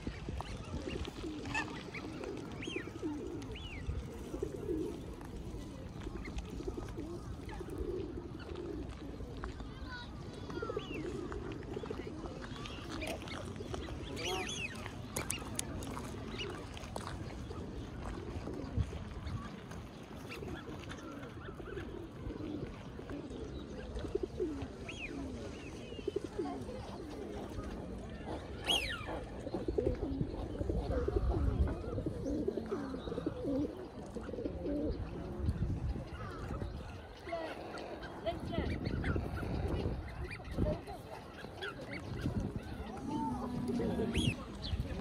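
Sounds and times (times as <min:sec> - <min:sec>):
pigeons cooing: 0:00.0 - 0:45.0
small birds chirping: 0:00.0 - 0:45.0.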